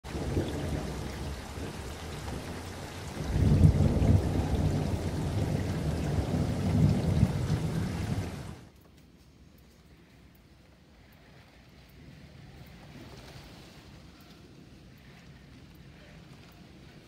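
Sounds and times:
heavy rain through window: 0.0 - 17.0
gusting wind rumble: 0.1 - 8.7.

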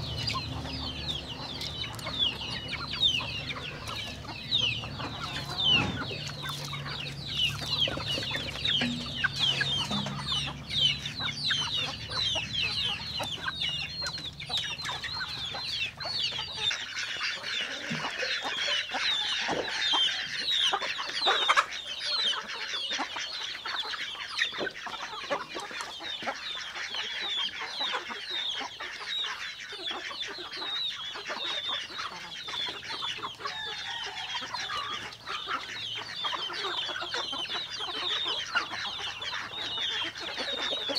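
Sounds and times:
low hum: 0.0 - 13.5
chickens calling: 0.0 - 40.9.

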